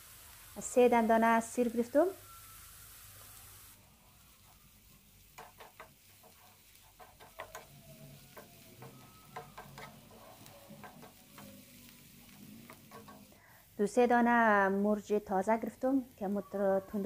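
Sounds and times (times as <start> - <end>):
faint sizzle: 0.0 - 17.0
wooden spatula scraping frying pan: 5.2 - 13.4.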